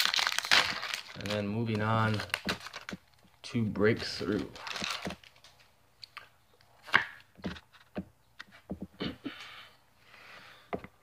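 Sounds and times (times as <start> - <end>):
cards and wrapper rustling: 0.0 - 5.7.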